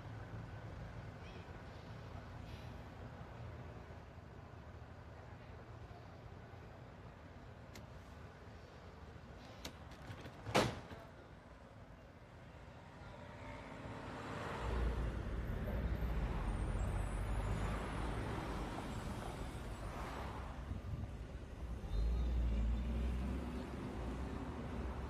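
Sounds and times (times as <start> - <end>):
cars driving past: 12.8 - 25.0.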